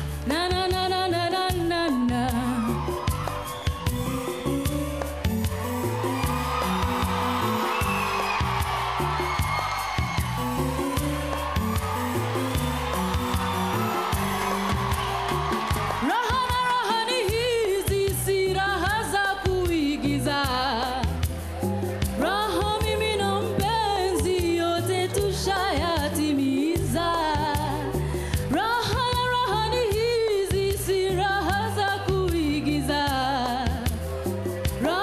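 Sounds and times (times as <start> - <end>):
woman singing pop song: 0.0 - 3.4, 15.7 - 21.3, 22.1 - 34.1, 34.7 - 35.0
bass line and beat: 0.0 - 35.0.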